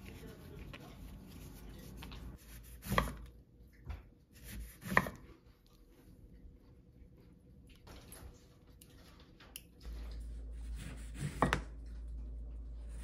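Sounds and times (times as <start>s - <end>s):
lemon rubbed in cloth towel: 0.0s - 2.8s
knife chopping on wooden board: 2.6s - 3.3s, 4.4s - 5.2s.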